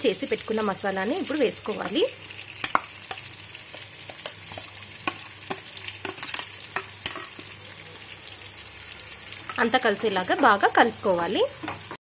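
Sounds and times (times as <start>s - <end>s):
food sizzling in oil: 0.0s - 12.0s.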